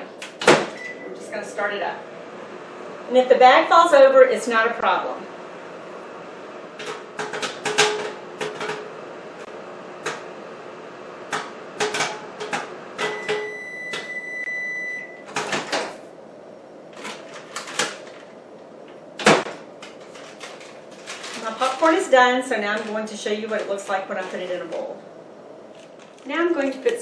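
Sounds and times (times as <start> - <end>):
microwave oven hum: 0.0 - 26.9
microwave beep: 0.7 - 1.3, 13.0 - 15.4
popcorn popping: 11.3 - 14.1.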